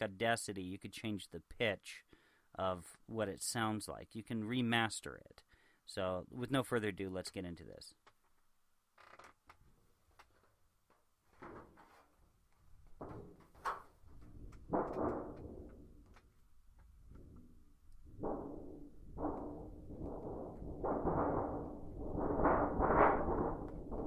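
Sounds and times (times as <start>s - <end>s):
metal sheet rattles: 11.3s - 24.0s
thunder sheet rumbling: 17.1s - 24.0s.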